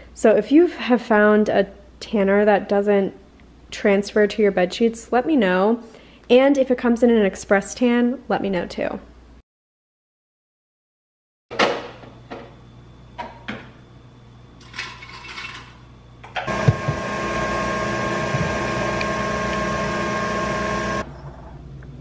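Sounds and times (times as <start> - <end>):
kitchen appliance humming: 16.2 - 21.4.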